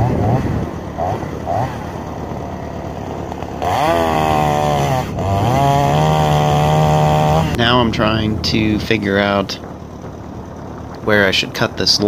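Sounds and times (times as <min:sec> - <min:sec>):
chainsaw revving: 0:00.0 - 0:07.8.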